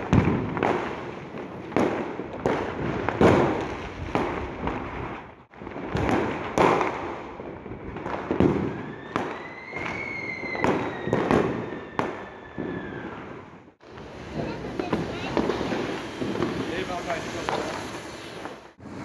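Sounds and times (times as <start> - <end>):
firework bangs: 0.0 - 19.0
firework crackling: 0.0 - 19.0
firework whistle: 8.5 - 19.0.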